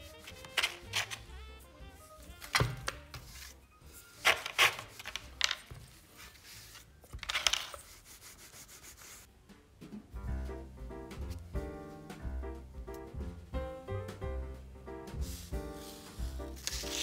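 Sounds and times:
dough rubbing and scraping on board: 0.0 - 9.3, 15.2 - 17.0
background music: 0.0 - 17.0.

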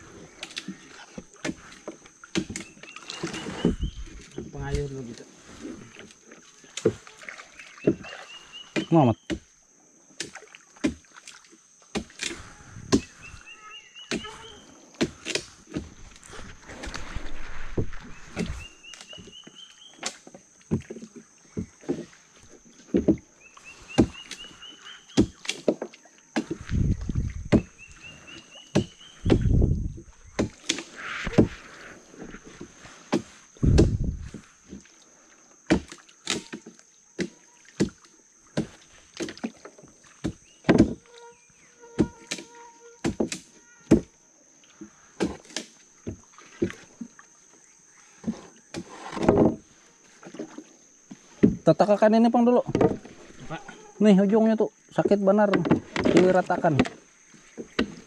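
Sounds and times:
paddle splashing in water: 0.0 - 9.3, 10.1 - 41.2, 43.0 - 58.0
paddle knocking against hull: 1.1 - 4.8, 15.0 - 24.6, 25.2 - 28.0, 28.6 - 34.8, 48.2 - 51.8, 52.6 - 53.7, 55.0 - 58.0.

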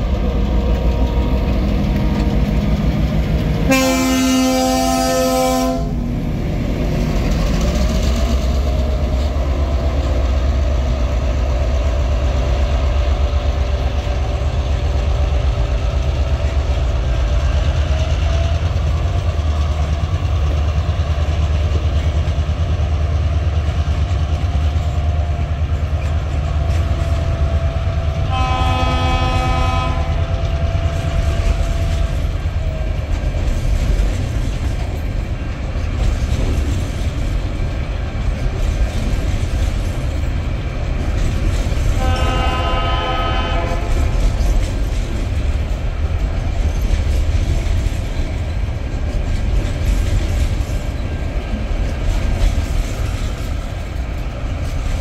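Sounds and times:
freight train rumbling past: 0.0 - 55.0
locomotive horn blasts: 3.6 - 6.0, 28.3 - 31.9, 42.0 - 44.2.

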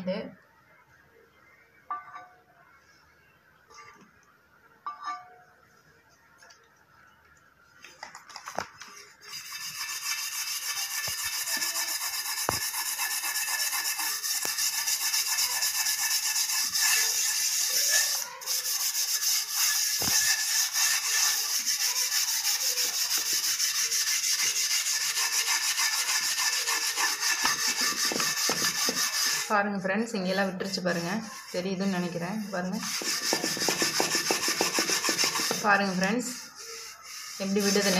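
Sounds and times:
steel wool scouring metal griddle: 9.2 - 29.6, 30.2 - 37.9.

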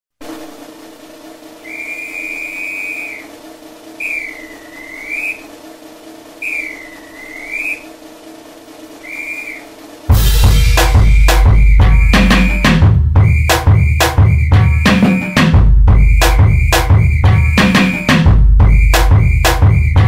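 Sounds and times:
steady low hum: 0.2 - 20.0
person whistling: 1.6 - 3.3, 4.0 - 5.4, 6.4 - 7.8, 11.0 - 12.3, 13.2 - 14.9, 15.9 - 17.7, 18.6 - 20.0.

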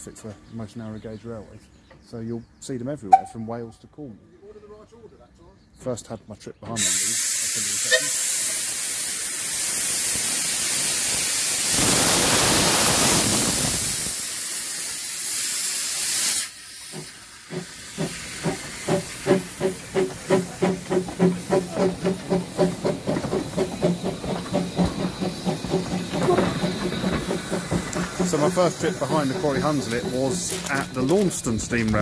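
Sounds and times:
steam hissing: 6.8 - 32.0
steam locomotive exhaust beats: 6.8 - 32.0.

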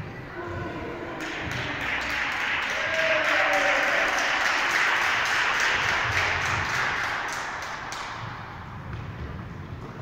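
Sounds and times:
spectators clapping and cheering: 1.2 - 8.7.

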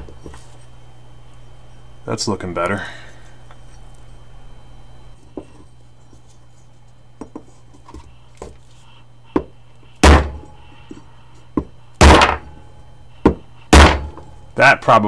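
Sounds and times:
hammer striking wooden block: 13.3 - 14.2.

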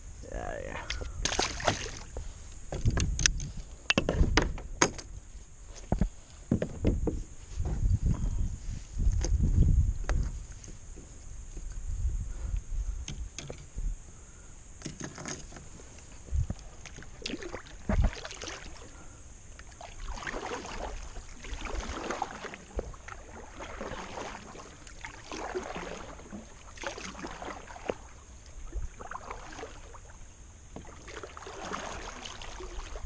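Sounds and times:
paddle splashing through water: 1.2 - 2.2, 16.8 - 19.0, 19.6 - 33.0.

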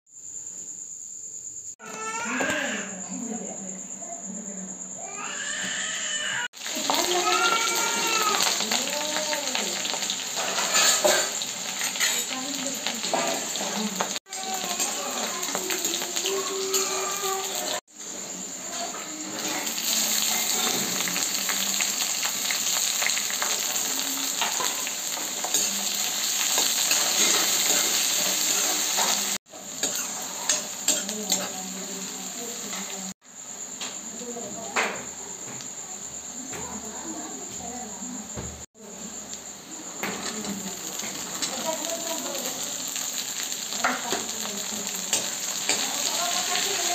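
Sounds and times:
onions sizzling in hot oil: 5.1 - 37.4, 38.0 - 46.9
metal ladle scraping pan: 10.4 - 12.3.

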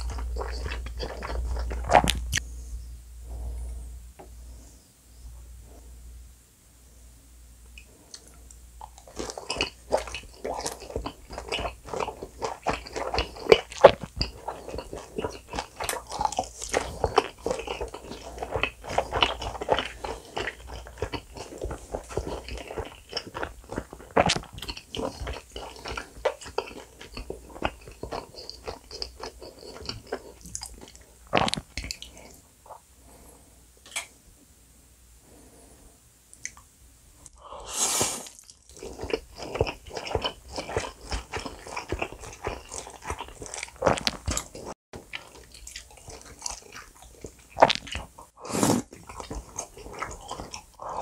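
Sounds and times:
crunchy chewing of fried food: 0.0 - 2.6, 7.8 - 34.1, 37.3 - 51.0.

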